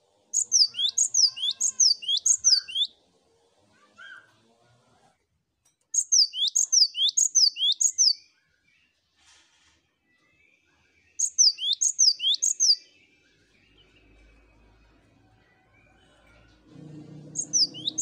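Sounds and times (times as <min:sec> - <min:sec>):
bird singing two-note phrase: 0:16.7 - 0:18.0.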